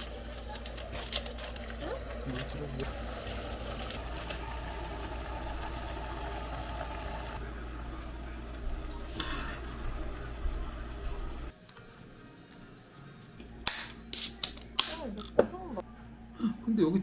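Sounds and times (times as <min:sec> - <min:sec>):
pot boiling and bubbling: 0:00.0 - 0:11.6.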